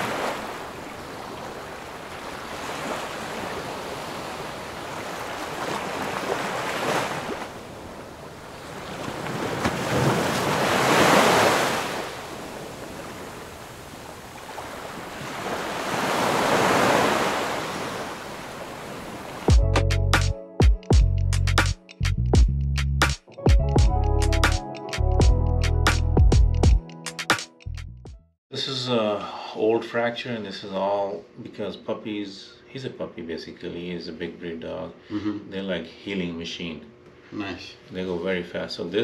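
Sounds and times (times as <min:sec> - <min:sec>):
ocean waves washing in: 0:00.0 - 0:19.5.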